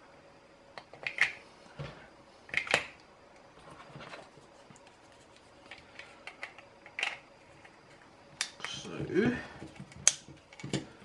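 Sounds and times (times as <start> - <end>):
batteries clicking into holder: 0.8 - 1.4.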